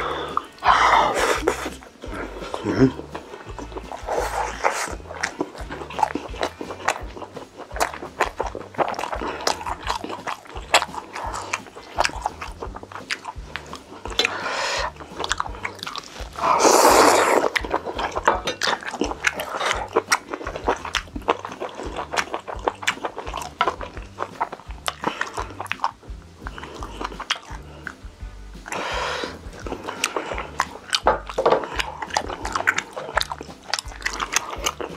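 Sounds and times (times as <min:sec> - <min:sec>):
background music with bass: 0:00.0 - 0:34.9
close-miked chewing and biting: 0:00.0 - 0:34.9.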